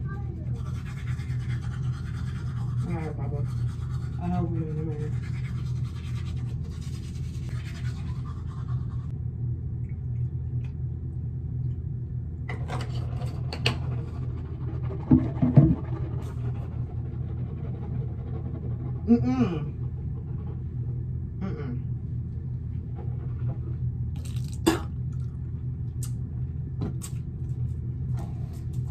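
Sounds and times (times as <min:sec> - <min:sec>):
steady low hum: 0:00.0 - 0:28.9
toothbrush scrubbing teeth: 0:00.1 - 0:09.1, 0:13.0 - 0:20.7.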